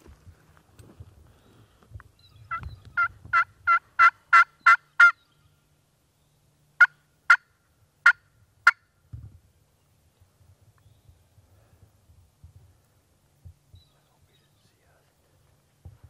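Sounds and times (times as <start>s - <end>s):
turkey call yelps: 2.3s - 5.2s
turkey call clucks: 2.4s - 5.2s, 6.8s - 8.9s.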